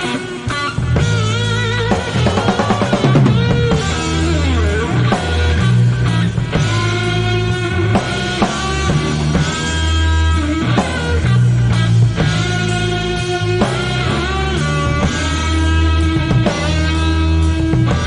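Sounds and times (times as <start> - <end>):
bass notes: 0.0 - 18.0
guitars: 0.0 - 18.0
drum hits: 1.0 - 7.0.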